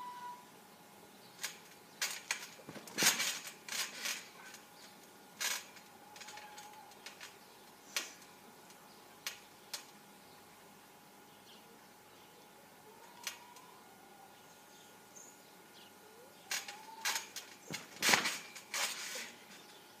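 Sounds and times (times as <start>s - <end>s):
trampoline springs clinking and creaking: 1.3s - 10.0s, 16.4s - 19.8s.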